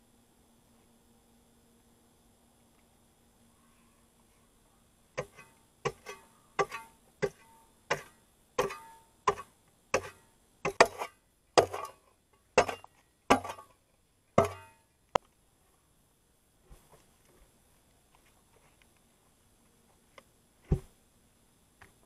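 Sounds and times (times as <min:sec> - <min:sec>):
spade chopping into soil: 0:05.2 - 0:12.0, 0:12.6 - 0:13.7, 0:14.4 - 0:14.8.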